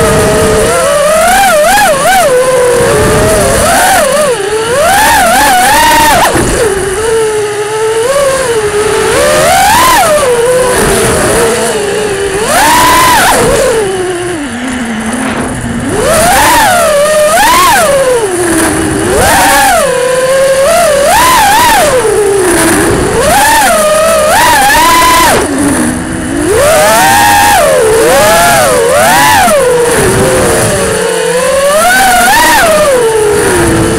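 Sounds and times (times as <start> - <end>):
drone propellers whining: 0.0 - 33.9.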